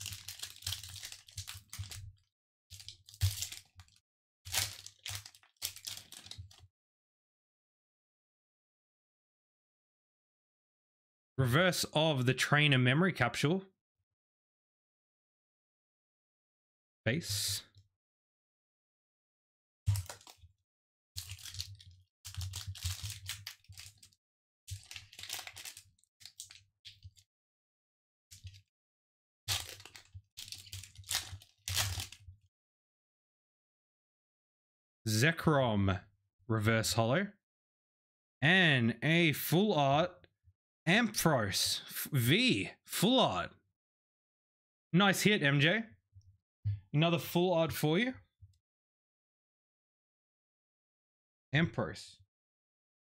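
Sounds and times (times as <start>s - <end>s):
foil wrapper crinkling: 0.0s - 2.1s, 2.7s - 6.6s, 19.9s - 20.4s, 21.2s - 24.1s, 24.7s - 27.2s, 29.5s - 32.2s.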